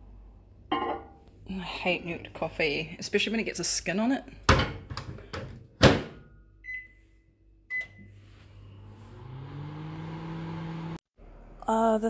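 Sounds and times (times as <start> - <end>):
microwave keypad beeps: 6.6 - 7.0, 7.7 - 8.2
microwave oven humming: 7.7 - 11.6.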